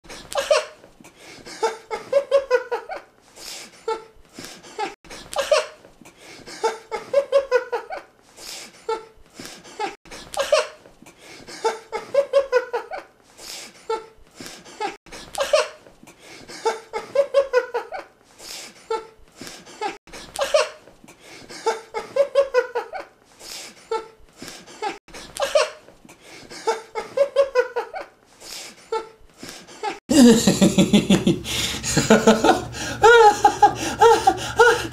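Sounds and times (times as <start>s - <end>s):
man laughing: 29.8s - 34.9s.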